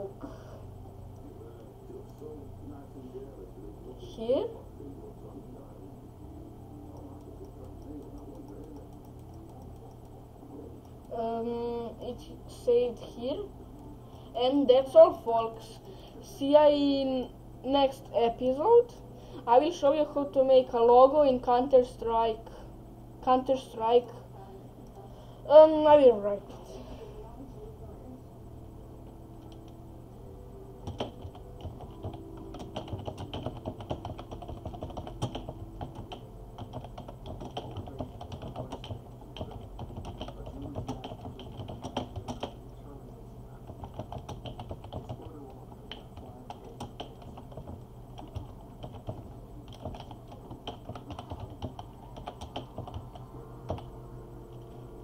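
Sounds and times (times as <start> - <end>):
faint low hum: 0.0 - 55.0
computer keyboard typing: 6.9 - 10.2, 30.8 - 42.6, 43.6 - 53.9.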